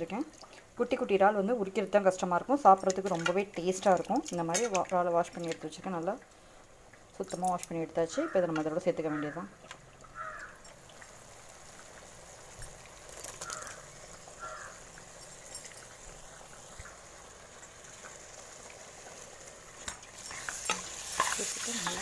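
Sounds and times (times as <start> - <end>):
faint sizzling in a pan: 0.0 - 22.0
prawns dropped into pan: 12.4 - 14.0, 19.8 - 22.0.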